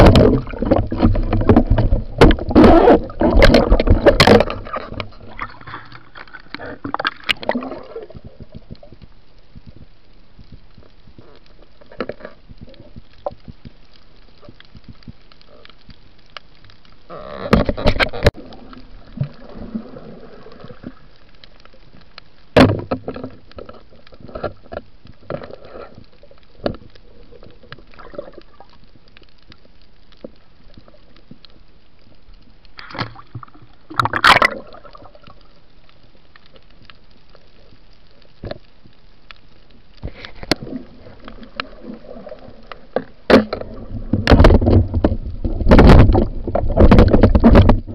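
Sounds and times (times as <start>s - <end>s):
splashing: 0.0s - 9.0s, 32.8s - 35.6s
underwater water sloshing: 0.0s - 47.9s
sharp knocks and clicks: 43.0s - 47.9s.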